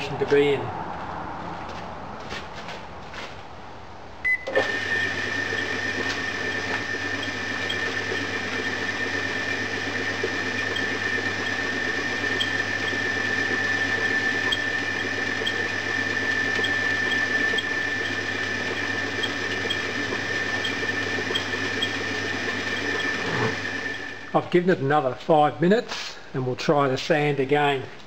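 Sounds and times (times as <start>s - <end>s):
low motor hum: 4.3s - 24.4s.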